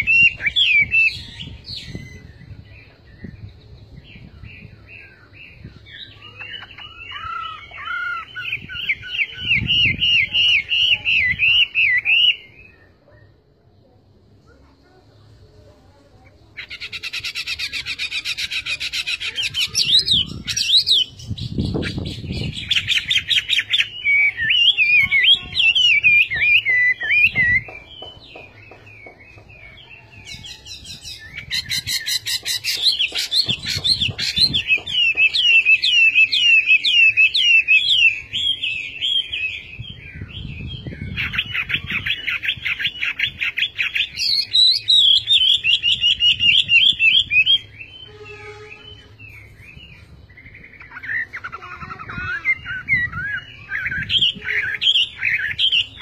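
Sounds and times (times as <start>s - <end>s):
bird singing whistled notes: 0.0s - 13.4s, 16.6s - 51.6s, 52.2s - 56.0s.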